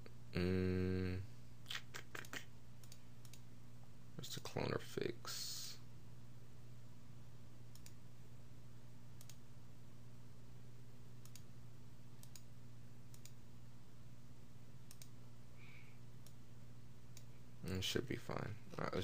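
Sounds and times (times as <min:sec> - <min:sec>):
low electrical hum: 0:00.0 - 0:19.0
computer mouse clicks: 0:02.2 - 0:03.4, 0:07.7 - 0:08.0, 0:09.2 - 0:09.4, 0:11.2 - 0:11.5, 0:12.2 - 0:12.5, 0:13.1 - 0:13.4, 0:14.9 - 0:15.2, 0:17.1 - 0:17.3.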